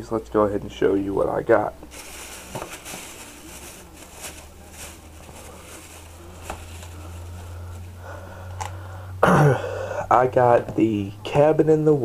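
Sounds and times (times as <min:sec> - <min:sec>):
steady low hum: 0:01.2 - 0:11.3
plastic bag rustling and crinkling: 0:01.9 - 0:08.0.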